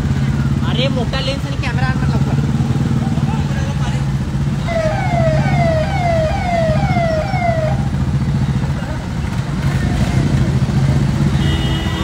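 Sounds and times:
low rumble of engines and crowd: 0.0s - 12.0s
electronic siren falling tone: 4.7s - 7.9s.

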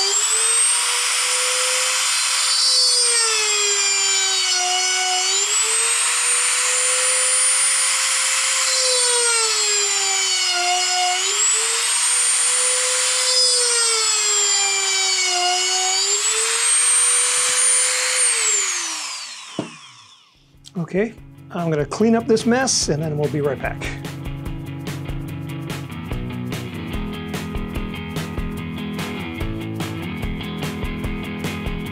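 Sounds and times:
rotary tool drilling wood: 0.0s - 20.4s.

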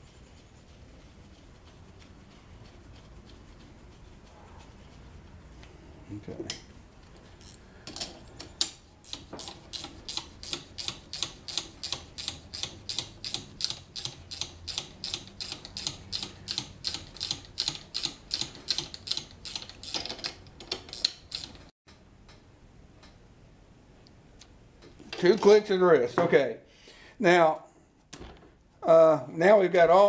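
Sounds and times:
ratchet wrench clicking: 8.6s - 21.6s.

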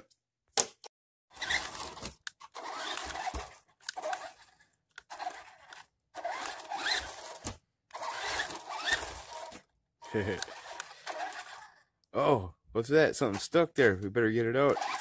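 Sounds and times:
toy truck electric motor whining: 1.3s - 12.0s, 14.7s - 15.0s.

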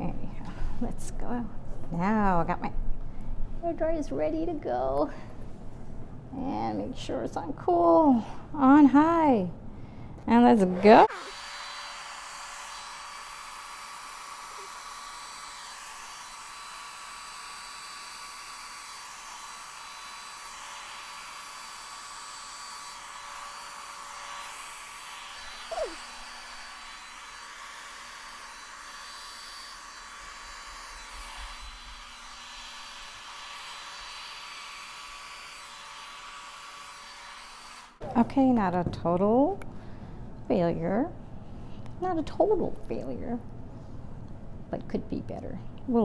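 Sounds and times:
hair dryer running: 10.6s - 38.6s.

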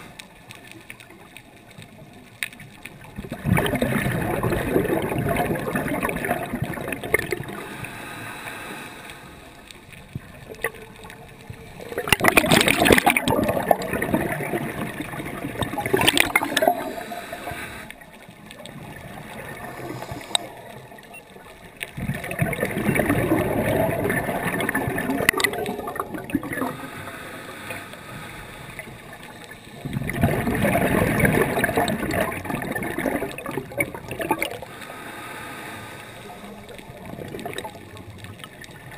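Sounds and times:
gurgling exhaled bubbles underwater: 0.0s - 8.1s, 9.4s - 27.3s, 28.1s - 35.0s, 36.0s - 38.9s
diver breathing through regulator: 7.2s - 9.7s, 16.5s - 18.0s, 19.5s - 21.0s, 26.5s - 29.9s, 34.6s - 36.9s.

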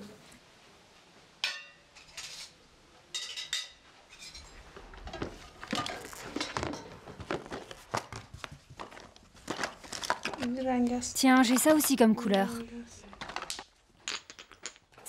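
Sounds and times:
small hard objects clattering: 5.6s - 8.2s, 8.8s - 15.0s.

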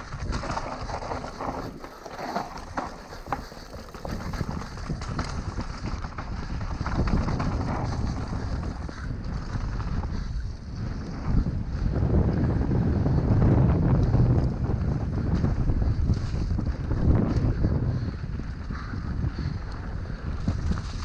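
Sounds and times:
tyres running over dirt and leaves: 0.0s - 8.8s
bike rattling over bumps: 0.0s - 21.0s
wind rumbling on microphone: 0.0s - 21.0s.

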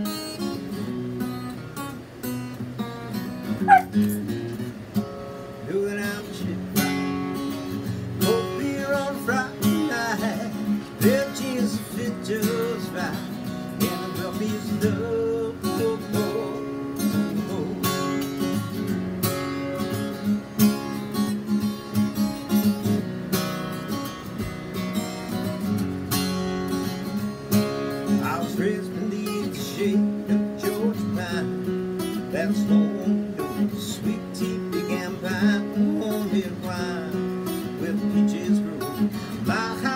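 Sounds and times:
acoustic guitar strumming: 0.0s - 39.9s.

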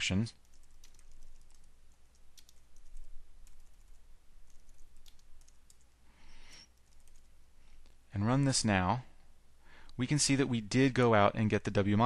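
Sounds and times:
soft hiss: 0.0s - 11.9s
keyboard keys clicking: 0.4s - 5.8s, 6.8s - 7.3s.

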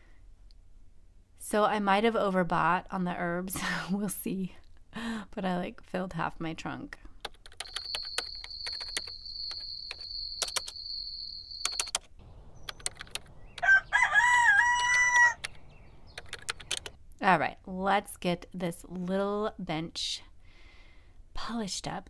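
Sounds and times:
scattered clicks: 7.2s - 10.8s, 11.6s - 13.7s, 14.9s - 17.0s
rooster crowing: 13.5s - 15.5s.

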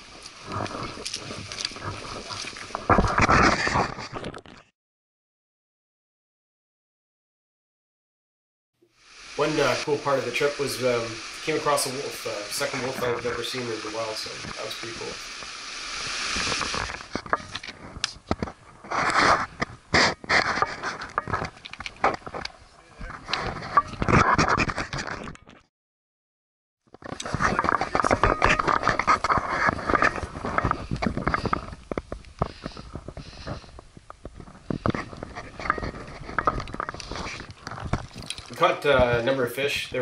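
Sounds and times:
footsteps crunching on scree: 0.0s - 4.6s, 9.4s - 25.6s, 26.9s - 39.4s
creek rushing over rocks: 9.2s - 17.2s
short breaths: 32.4s - 33.9s.

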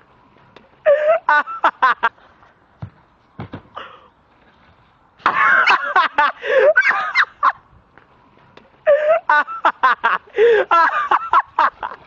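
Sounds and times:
teenage boys laughing hard: 0.8s - 2.2s, 5.2s - 7.6s, 8.8s - 12.0s.

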